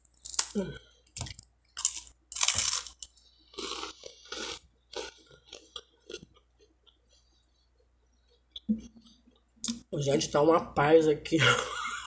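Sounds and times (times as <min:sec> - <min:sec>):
crunching toast: 0:00.0 - 0:06.5
chewing: 0:01.1 - 0:08.6.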